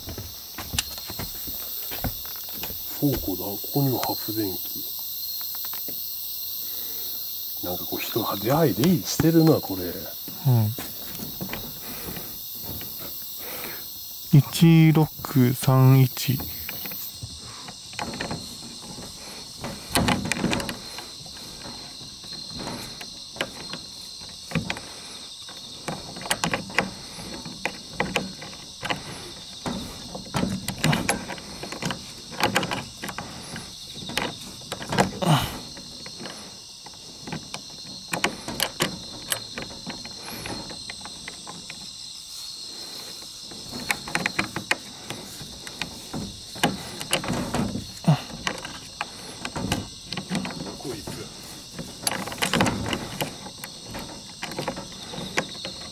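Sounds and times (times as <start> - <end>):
insects chorus: 0.0 - 55.9
knocks scuffs and rustles: 0.0 - 55.9.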